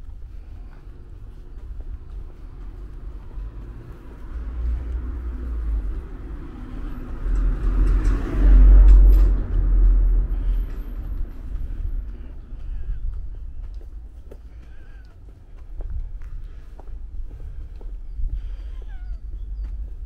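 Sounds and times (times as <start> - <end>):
deep rumble: 0.0 - 20.0
car driving past: 1.4 - 12.6.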